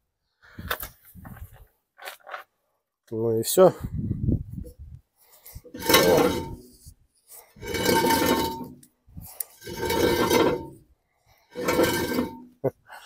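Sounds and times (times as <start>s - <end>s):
metal scraping on metal: 5.6s - 10.9s, 11.5s - 12.6s.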